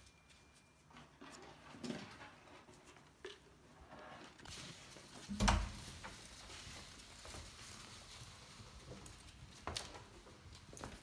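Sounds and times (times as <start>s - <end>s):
small feet pattering on wooden floor: 4.5s - 11.0s.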